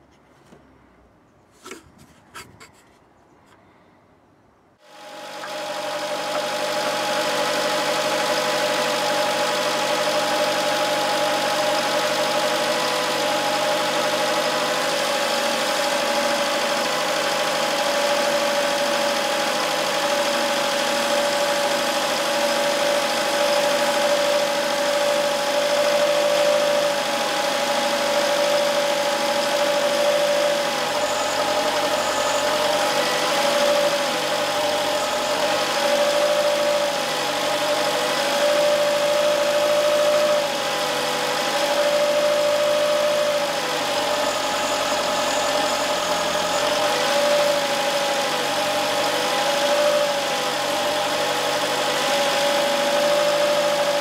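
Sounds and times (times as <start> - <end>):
vacuum pump humming: 4.8 - 54.0.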